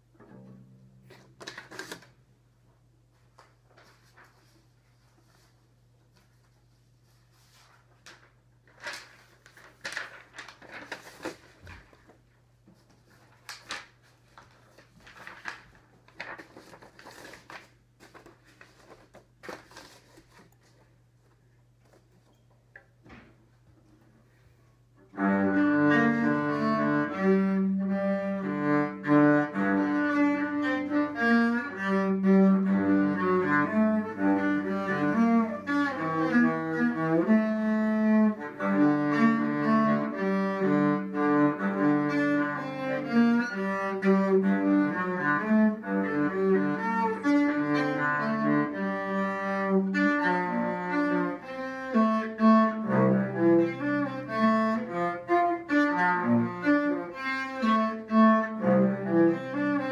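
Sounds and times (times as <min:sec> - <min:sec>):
bowed cello melody: 0:25.1 - 0:59.9.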